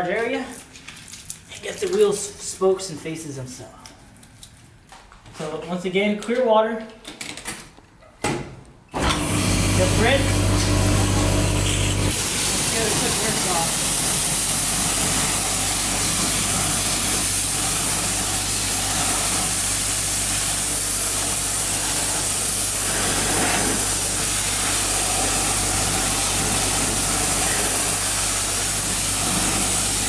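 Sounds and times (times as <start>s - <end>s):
pressure washer spraying water: 9.0s - 30.0s.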